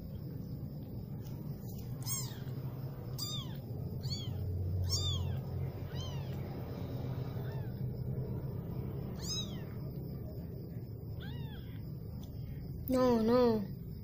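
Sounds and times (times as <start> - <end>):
kitten mewing: 2.0 - 6.4, 9.2 - 9.8.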